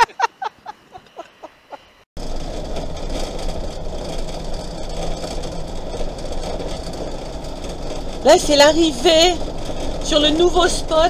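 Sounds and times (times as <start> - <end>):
woman laughing: 0.0 - 2.0
motorhome engine and road noise: 2.2 - 11.0.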